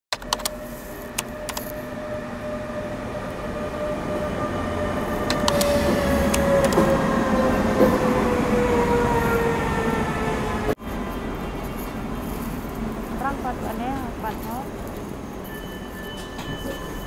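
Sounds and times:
sharp clicks: 0:00.1 - 0:01.8, 0:05.2 - 0:06.9
locomotive whine: 0:00.2 - 0:17.0
train rumble: 0:00.2 - 0:17.0.

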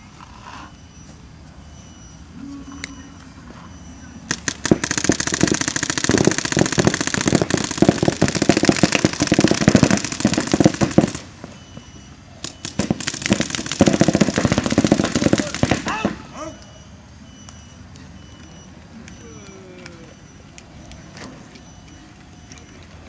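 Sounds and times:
paintball markers firing rapidly: 0:04.3 - 0:11.2, 0:12.4 - 0:16.1.

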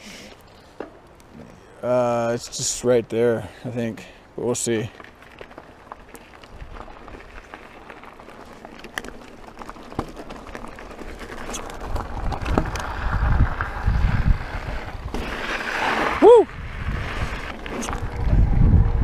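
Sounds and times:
bike ticks and rattles: 0:04.0 - 0:19.0
tyres crunching on gravel: 0:04.4 - 0:18.5
wind buffeting microphone: 0:11.8 - 0:15.2, 0:16.1 - 0:19.0.

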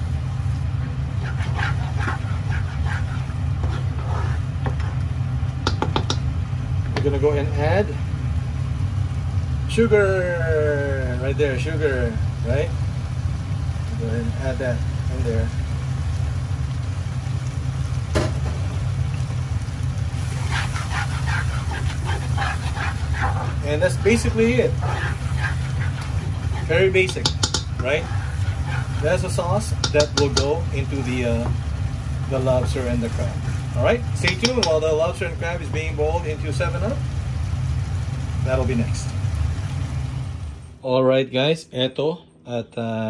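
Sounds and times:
low steady hum: 0:00.0 - 0:43.0
spatula stirring sauce in pan: 0:00.4 - 0:06.3, 0:19.1 - 0:36.6
spatula clicking against pan: 0:05.6 - 0:06.3, 0:27.1 - 0:27.9, 0:29.8 - 0:30.5
spatula knocking on pan: 0:05.6 - 0:06.3, 0:24.8 - 0:29.0, 0:29.7 - 0:30.6, 0:34.2 - 0:34.8.

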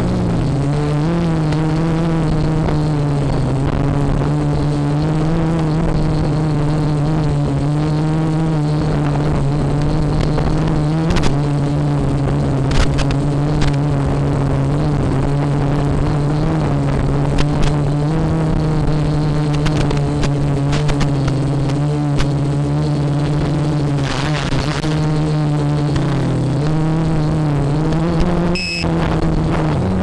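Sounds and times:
quadcopter motors humming: 0:00.0 - 0:30.0.

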